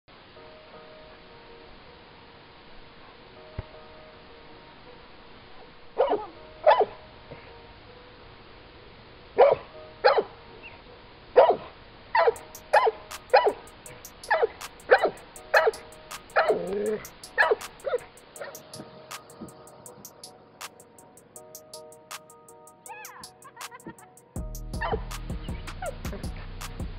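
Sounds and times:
faint background music: 0.1s - 26.9s
large dog barking: 6.0s - 6.9s, 9.4s - 10.3s, 11.4s - 13.6s, 14.3s - 15.8s, 16.4s - 18.6s
light ticking beat: 12.4s - 26.9s.

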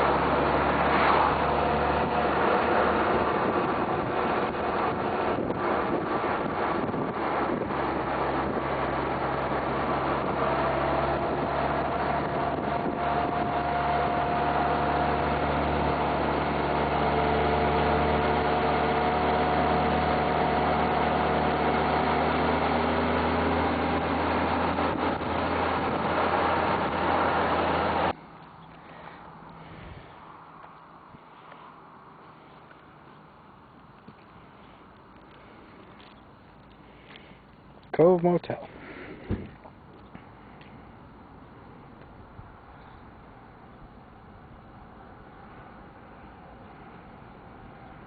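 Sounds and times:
wind and road noise: 0.0s - 48.0s.

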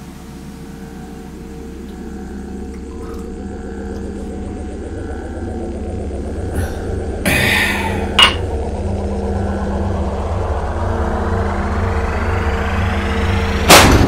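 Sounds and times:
low steady drone: 0.0s - 14.0s
glass clinking against counter: 8.2s - 8.4s.

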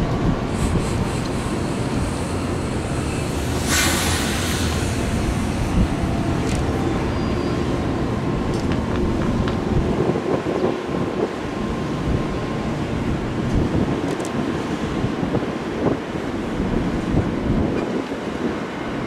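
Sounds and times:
train rumbling on rails: 0.0s - 19.0s
brief hiss: 3.3s - 5.5s.

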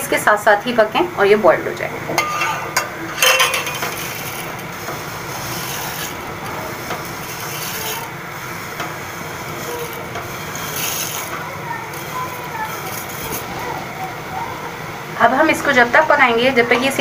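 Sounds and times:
spoon clinking on pot: 2.2s - 4.1s
spoon stirring and scraping pot: 2.2s - 13.6s
vermicelli sliding into pot: 2.2s - 13.6s.

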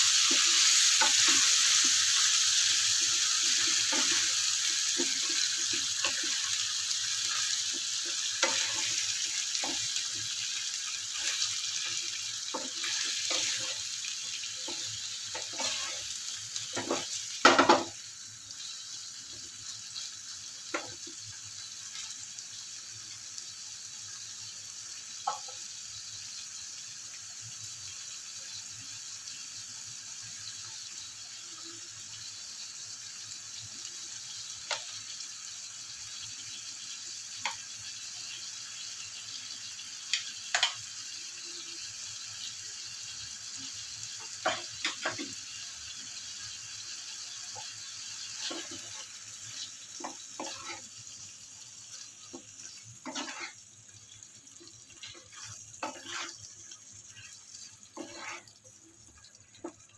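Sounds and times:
chicken sizzling in oil: 0.0s - 59.9s
spatula scraping a pan: 7.3s - 10.3s, 11.1s - 14.0s, 14.6s - 16.1s, 47.5s - 50.9s, 52.3s - 53.6s, 55.0s - 56.5s, 57.1s - 58.6s.

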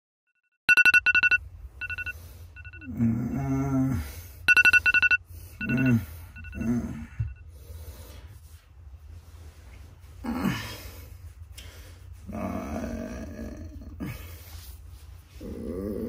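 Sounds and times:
electronic alarm beeping: 0.7s - 2.9s, 4.5s - 7.4s
man groaning sleepily: 2.9s - 4.1s, 10.2s - 10.8s, 12.3s - 14.2s.

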